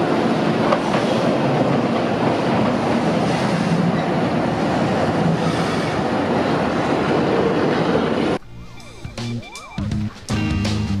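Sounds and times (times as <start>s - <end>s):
tram wheels on rails: 0.0s - 8.5s.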